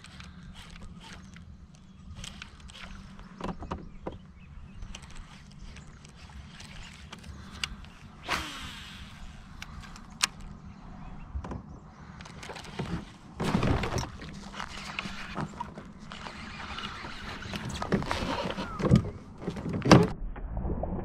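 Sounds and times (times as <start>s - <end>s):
rustling: 12.3s - 18.9s.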